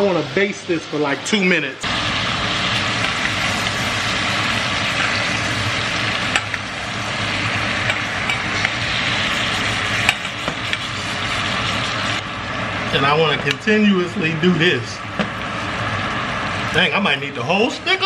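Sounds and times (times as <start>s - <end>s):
steak sizzling in butter: 1.8s - 12.3s.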